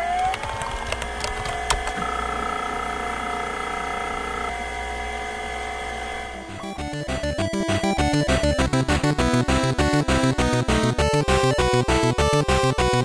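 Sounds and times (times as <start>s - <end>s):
computer drives and fan humming: 0.0s - 6.7s
high steady tone: 1.6s - 7.7s.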